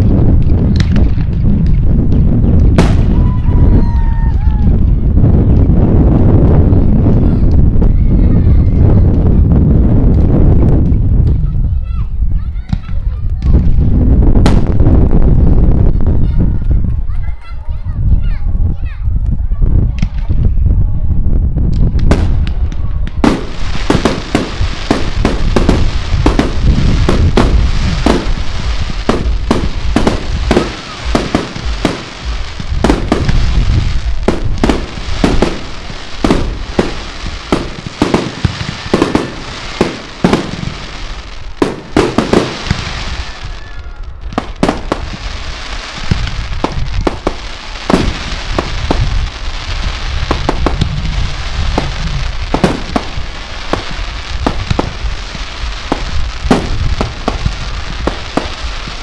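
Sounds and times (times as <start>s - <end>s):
fireworks crackle: 0.0s - 18.4s, 21.5s - 59.0s
fireworks shells bursting: 23.2s - 43.4s.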